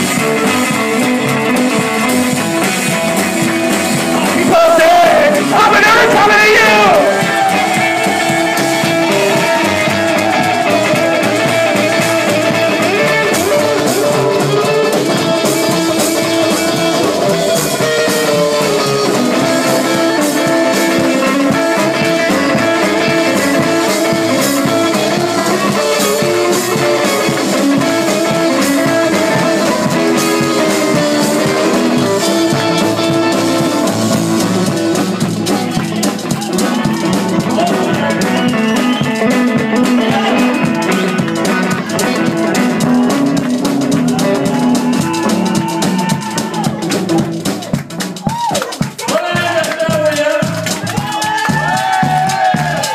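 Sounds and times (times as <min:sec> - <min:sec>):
rockabilly band playing: 0:00.0 - 0:52.9.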